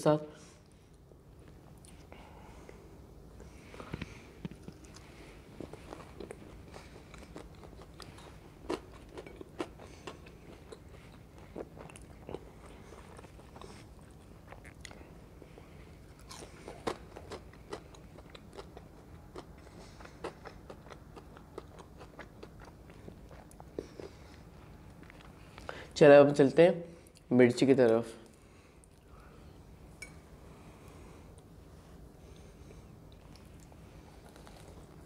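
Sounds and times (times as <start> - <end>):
chewing crunchy fried food: 3.6 - 25.9, 32.2 - 35.0.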